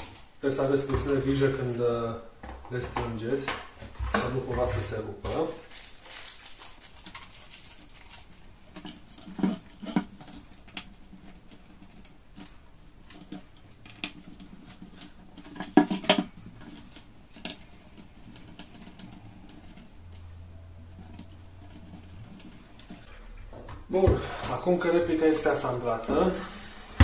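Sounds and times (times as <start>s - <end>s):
light clicks and scrapes: 3.5s - 23.5s.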